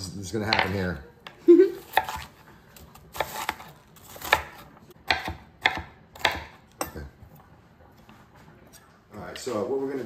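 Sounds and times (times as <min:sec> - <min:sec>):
knife chopping on wooden board: 0:01.9 - 0:06.9.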